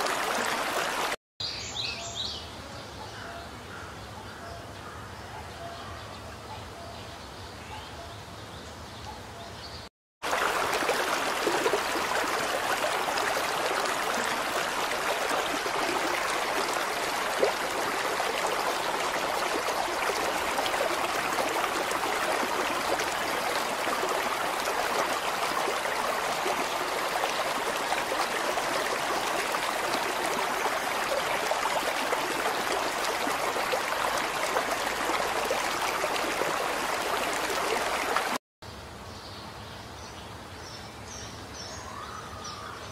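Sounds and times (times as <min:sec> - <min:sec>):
river water rushing: 0:00.0 - 0:01.2, 0:10.2 - 0:38.4.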